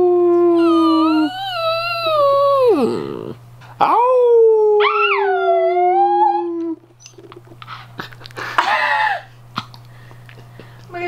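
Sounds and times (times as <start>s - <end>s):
man howling: 0.0s - 6.8s, 8.6s - 9.3s
small dog howling: 0.0s - 6.8s.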